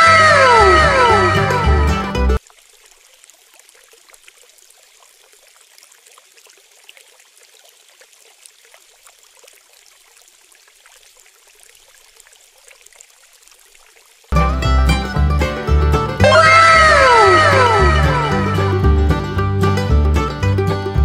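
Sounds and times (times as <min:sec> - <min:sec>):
water trickling: 0:00.0 - 0:14.4
light water splashing: 0:02.4 - 0:14.4.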